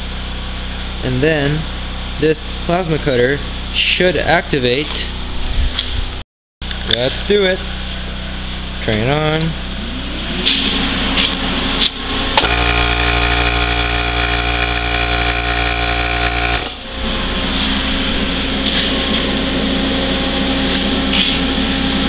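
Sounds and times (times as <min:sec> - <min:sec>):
steady machine noise: 0:09.6 - 0:22.0
plasma cutter buzzing hum: 0:12.4 - 0:17.2.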